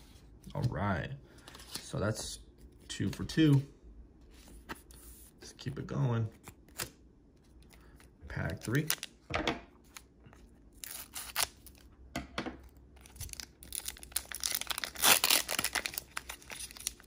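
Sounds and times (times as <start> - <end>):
foil wrapper crinkling: 13.0 - 17.0
foil pack tearing: 13.2 - 17.0.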